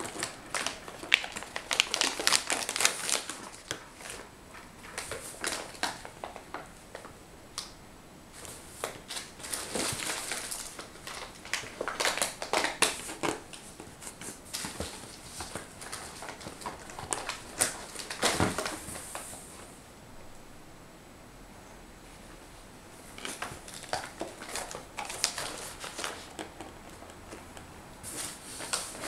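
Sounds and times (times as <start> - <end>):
cardboard box and packets rustling: 0.0 - 6.7, 8.4 - 19.7, 23.1 - 29.0.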